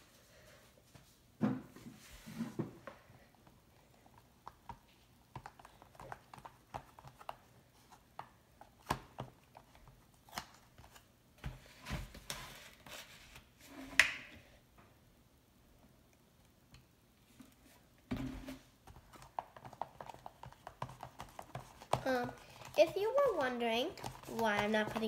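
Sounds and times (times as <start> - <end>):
plastic spoon scraping tub: 18.2 - 25.0.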